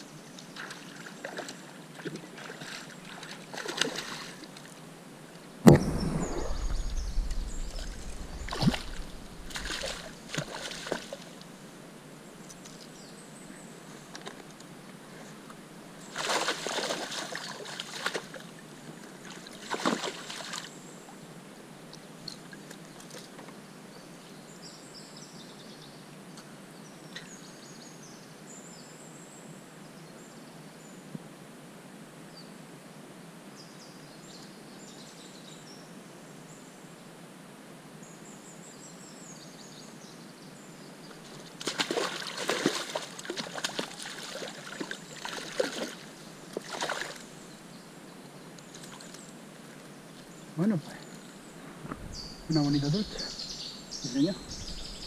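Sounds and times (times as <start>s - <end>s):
flowing river rushing: 5.7s - 11.4s
fish thrashing and splashing water: 5.8s - 11.3s, 16.2s - 18.3s, 19.6s - 20.6s, 41.6s - 47.3s.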